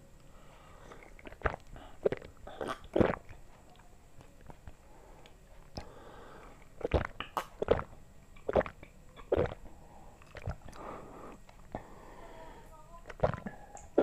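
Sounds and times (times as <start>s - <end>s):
person gulping juice: 0.9s - 3.4s, 5.7s - 11.9s, 13.0s - 14.0s.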